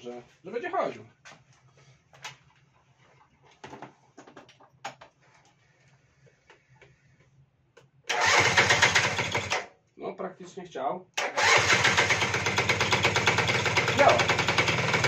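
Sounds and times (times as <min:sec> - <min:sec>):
electric starter cranking engine: 0:08.1 - 0:09.7, 0:11.2 - 0:15.0.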